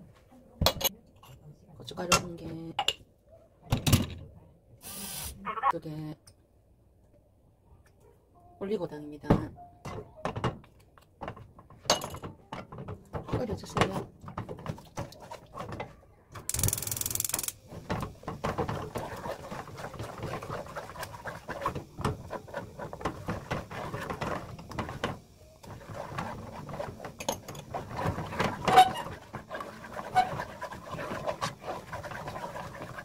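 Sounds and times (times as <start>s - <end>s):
wooden spoon scraping a pan: 17.7s - 33.0s.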